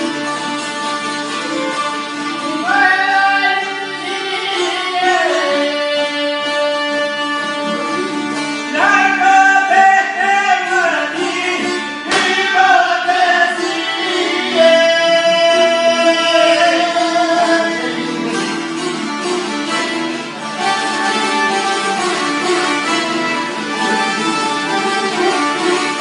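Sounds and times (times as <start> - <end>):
man singing folk song: 0.0 - 19.8
plucked string instrument: 0.0 - 26.0.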